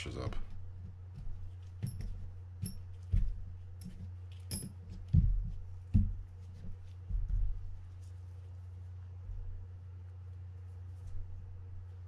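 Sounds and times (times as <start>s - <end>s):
metal parts clinking: 4.3s - 4.8s.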